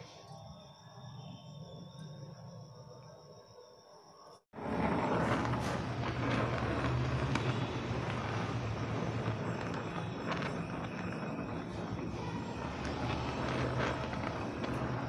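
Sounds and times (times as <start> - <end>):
small crackles: 4.6 - 15.0
welding torch flame hissing: 4.6 - 15.0.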